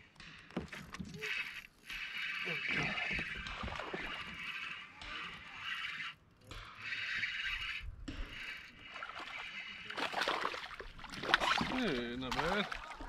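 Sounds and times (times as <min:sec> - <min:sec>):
fish splashing in water: 0:08.3 - 0:13.0.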